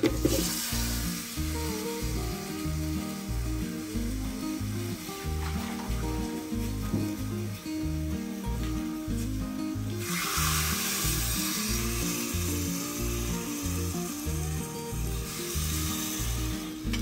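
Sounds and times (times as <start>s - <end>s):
background music with bass line: 0.0s - 17.0s
water pouring and splashing: 0.0s - 17.0s.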